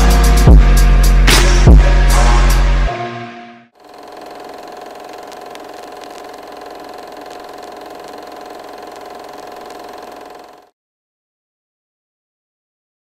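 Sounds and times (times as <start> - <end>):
mechanical whirr with hum: 3.8 - 10.7.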